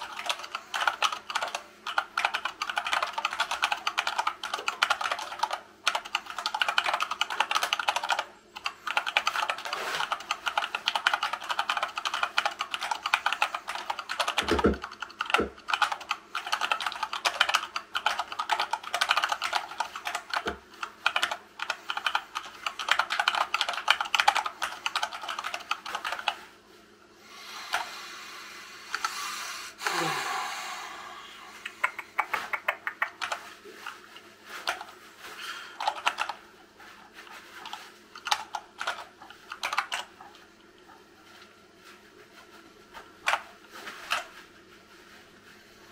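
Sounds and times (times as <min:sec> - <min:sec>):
fast typing on keyboard: 0:00.0 - 0:26.5, 0:31.9 - 0:34.0, 0:34.6 - 0:34.9, 0:35.8 - 0:36.4, 0:37.3 - 0:40.4, 0:43.2 - 0:44.3
scattered clicks: 0:31.6 - 0:33.5, 0:37.6 - 0:40.1.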